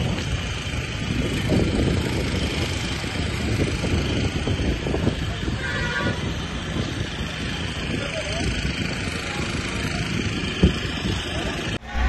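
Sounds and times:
fire rumbling and crackling: 0:00.0 - 0:12.0.

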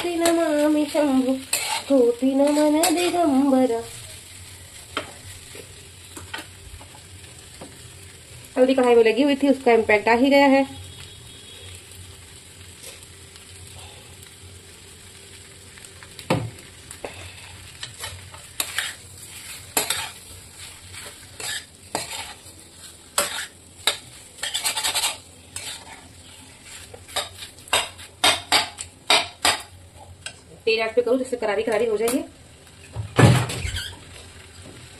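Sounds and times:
metal spatula scraping a pan: 0:00.0 - 0:03.5, 0:17.4 - 0:29.7
faint frying sizzle: 0:00.0 - 0:34.9.

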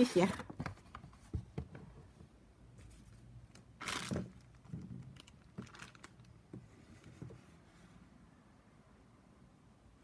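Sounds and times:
plastic bag crinkling: 0:03.8 - 0:06.3
soft knocks and rustles: 0:04.0 - 0:08.0.

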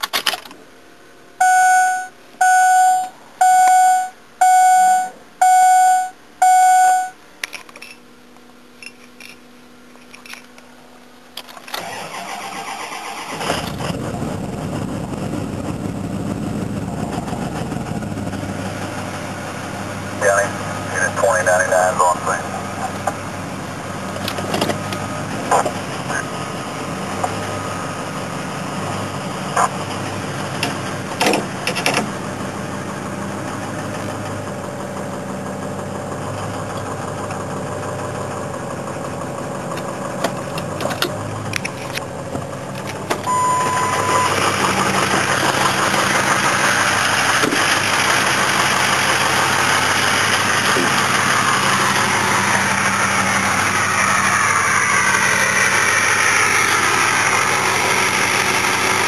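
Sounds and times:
vehicle chime: 0:01.4 - 0:07.2, 0:43.3 - 0:44.4
diesel engine idling: 0:10.6 - 0:59.0
turbo whistle: 0:43.3 - 0:44.4.

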